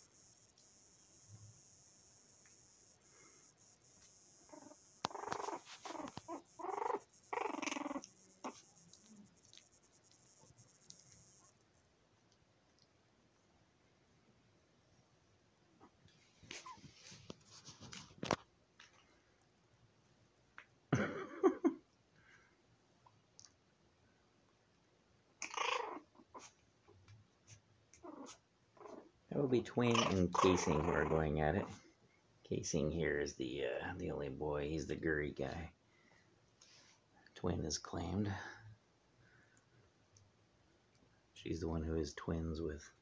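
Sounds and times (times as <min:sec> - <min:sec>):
puppies play-fighting: 0:00.1 - 0:11.6, 0:25.4 - 0:31.8
puppy vocalizing: 0:04.1 - 0:11.5, 0:25.4 - 0:26.6, 0:27.9 - 0:29.1, 0:29.9 - 0:31.8.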